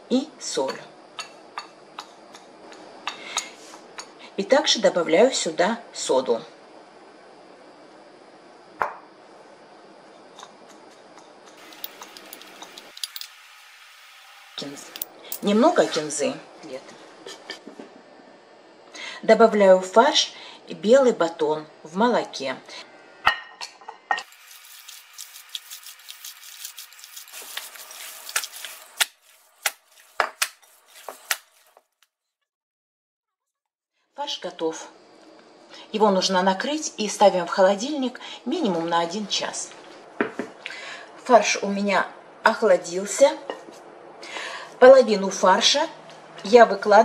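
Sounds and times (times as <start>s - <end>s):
wet squishing of minced meat: 24.3s - 31.8s.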